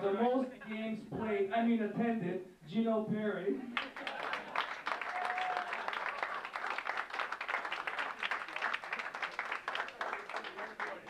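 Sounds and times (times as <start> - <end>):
people applauding: 3.7 - 11.0.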